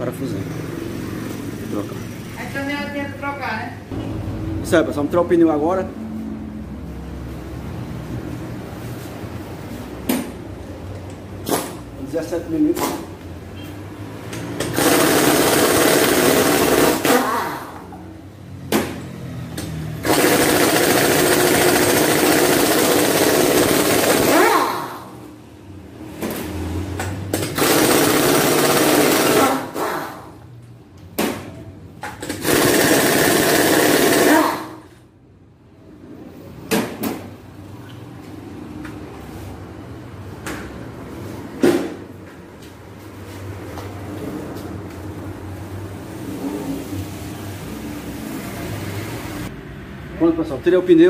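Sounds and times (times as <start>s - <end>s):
impact wrench hammering: 19.6s - 24.7s, 31.2s - 34.8s.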